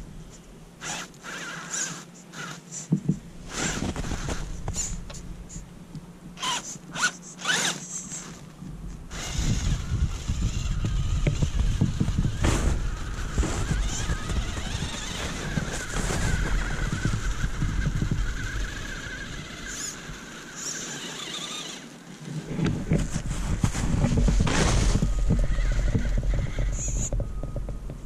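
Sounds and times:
electric motor whining: 0.8 - 2.6, 3.5 - 5.1, 6.4 - 8.4, 9.1 - 27.8.

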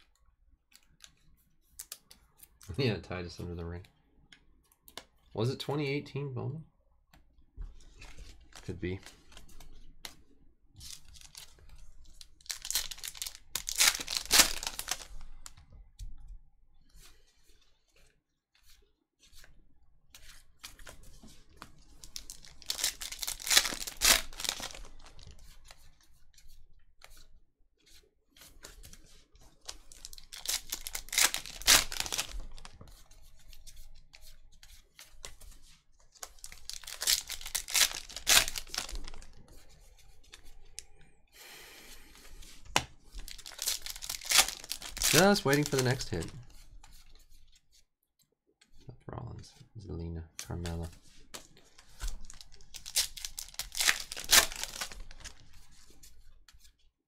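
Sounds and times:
faint crinkling of packs: 7.7 - 16.2, 20.1 - 41.2, 41.8 - 47.8, 50.4 - 56.8
foil wrappers tearing: 12.4 - 15.2, 22.0 - 25.3, 29.6 - 32.7, 36.3 - 39.3, 43.2 - 46.4, 51.8 - 55.4.

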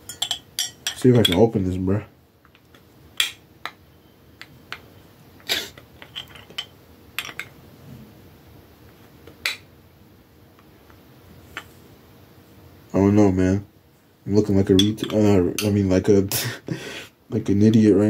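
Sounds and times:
bottle cap clicks and clinks: 6.0 - 7.5.

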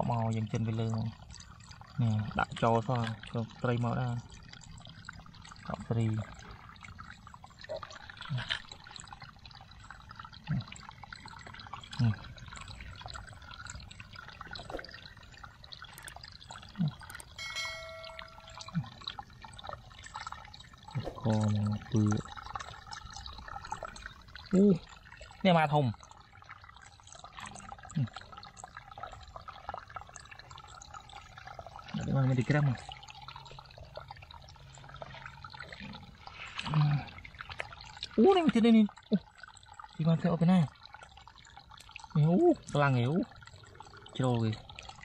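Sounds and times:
low plops: 0.0 - 25.4
crackle of small ticks: 0.0 - 45.0
water dripping and trickling: 0.0 - 45.0.

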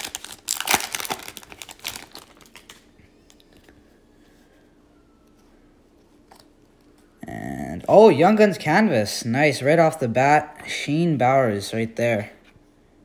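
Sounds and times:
foil wrapper crinkling: 0.0 - 3.6.

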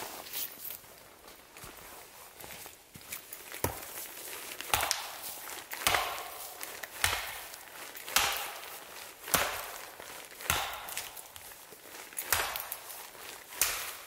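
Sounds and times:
axe chopping wood: 4.6 - 11.4, 12.2 - 12.8, 13.6 - 14.0.

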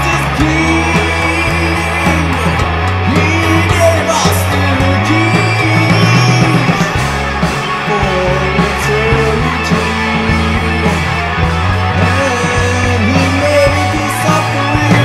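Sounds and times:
bass notes: 0.0 - 15.0
drums: 0.0 - 15.0
electric guitar melody: 0.0 - 15.0.

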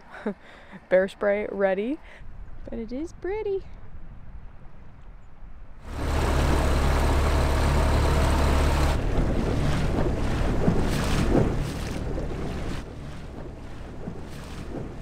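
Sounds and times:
wind rush on microphone: 2.0 - 5.9, 9.0 - 15.0
outboard motor humming: 5.8 - 15.0
water slapping hull: 5.8 - 15.0.

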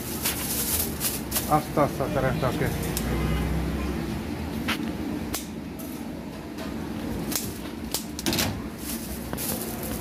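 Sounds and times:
plastic bag crinkling: 0.0 - 1.7, 8.7 - 10.0.

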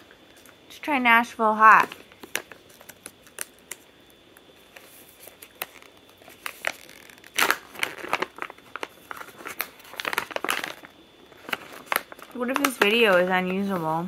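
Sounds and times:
plastic bag crinkling: 1.7 - 3.9, 4.6 - 14.0
bag ripping open: 5.6 - 12.4.

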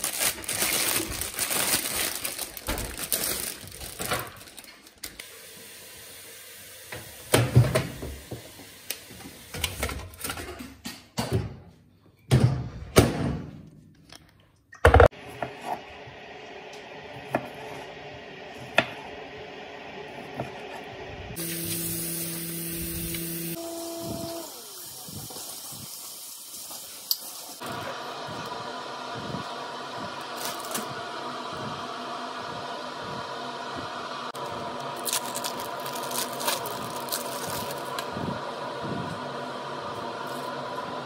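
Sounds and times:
foil tray and packaging rustling: 0.0 - 5.2, 35.0 - 38.0
microwave humming: 15.0 - 25.0, 27.6 - 41.0.

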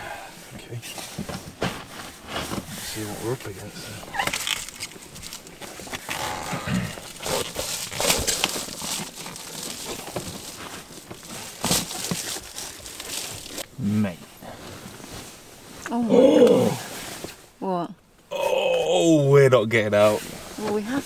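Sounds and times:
bubble foil crinkling: 4.1 - 13.7.

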